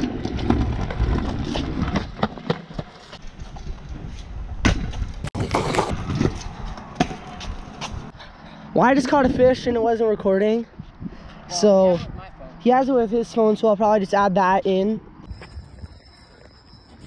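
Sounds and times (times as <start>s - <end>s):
scooter wheels rumbling on concrete: 0.0s - 8.2s, 15.2s - 17.0s.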